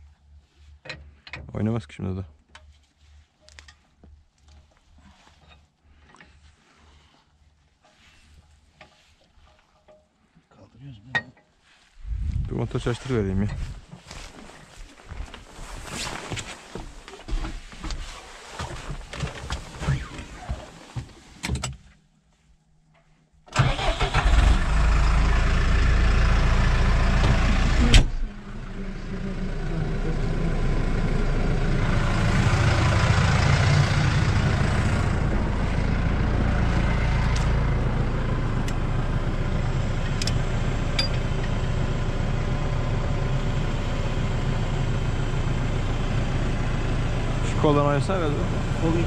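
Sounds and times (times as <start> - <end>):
tractor diesel engine running: 12.0 - 16.3, 23.6 - 49.0.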